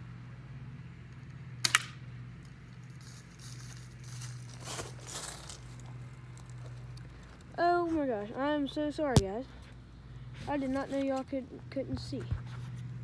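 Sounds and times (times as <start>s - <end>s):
steady low hum: 0.0s - 13.0s
airsoft rifle shot: 1.6s - 2.0s
soft rustle: 3.0s - 8.2s.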